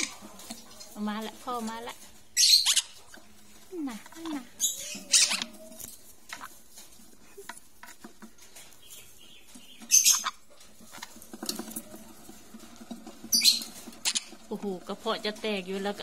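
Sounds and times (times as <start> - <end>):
chick squeaking: 2.3 - 3.4, 4.1 - 6.6, 8.7 - 11.1, 13.2 - 14.5.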